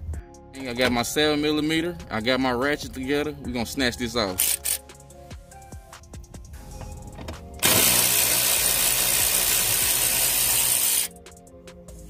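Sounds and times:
background music: 0:00.0 - 0:12.0
electric ratchet motor whirring: 0:04.4 - 0:04.8, 0:07.6 - 0:11.2.

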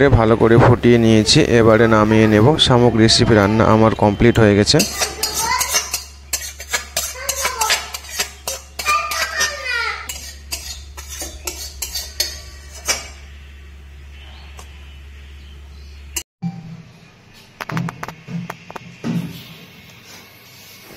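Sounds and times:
metal spatula scraping a wok: 0:04.7 - 0:13.3.

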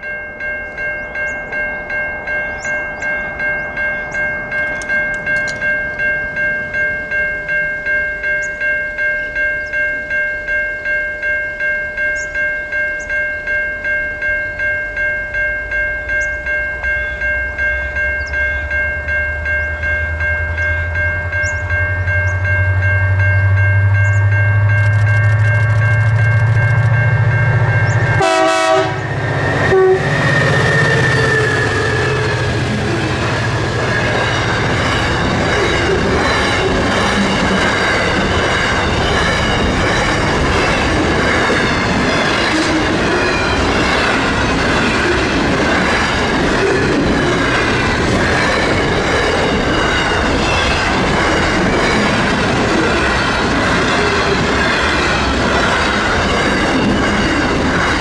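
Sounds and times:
level crossing bell ringing: 0:00.0 - 0:58.0
birds chirping: 0:02.4 - 0:05.7
diesel locomotive rumble: 0:16.0 - 0:58.0.

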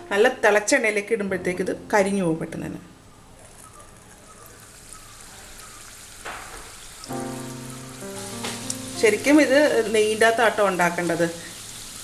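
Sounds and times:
dough frying in hot oil: 0:03.5 - 0:12.0.

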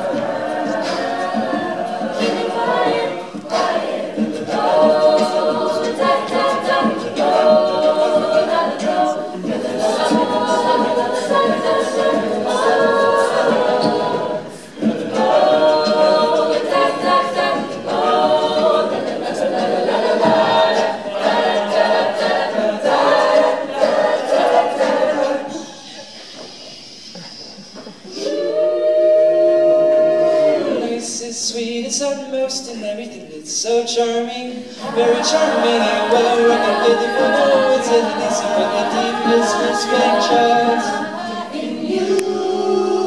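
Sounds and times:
mixed voices singing in harmony: 0:00.0 - 0:32.0, 0:33.6 - 0:43.0.

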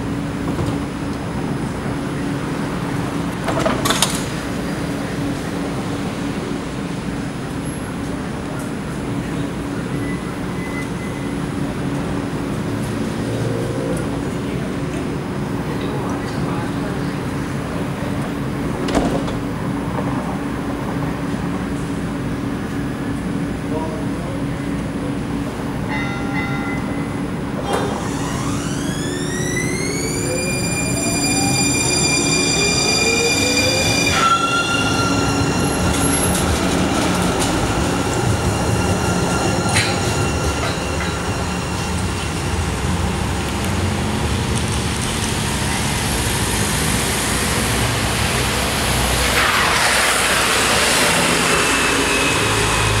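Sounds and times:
electric train drive whining: 0:27.8 - 0:44.2, 0:47.0 - 0:53.0
broad rushing noise: 0:47.4 - 0:53.0.

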